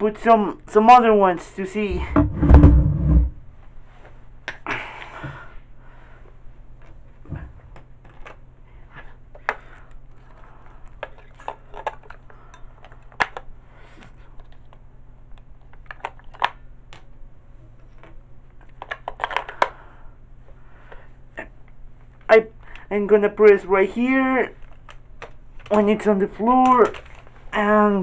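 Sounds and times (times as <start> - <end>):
batteries clicking in compartment: 9.3 - 13.5, 14.4 - 17.1, 18.0 - 19.8.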